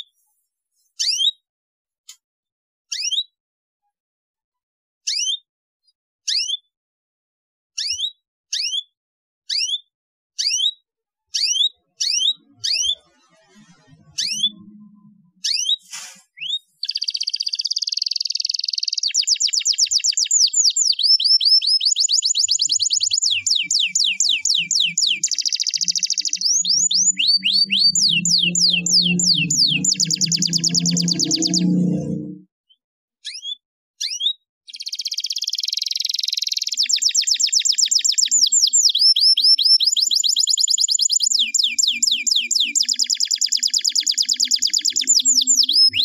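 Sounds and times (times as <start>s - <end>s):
canary chirps: 1.0s - 1.4s, 2.9s - 3.4s, 5.1s - 5.4s, 6.3s - 6.7s, 7.8s - 8.9s, 9.5s - 32.4s, 33.2s - 46.0s
canary trilling song: 1.0s - 1.4s, 2.9s - 3.4s, 5.0s - 5.4s, 6.3s - 6.7s, 7.8s - 8.9s, 9.5s - 32.4s, 33.2s - 46.0s.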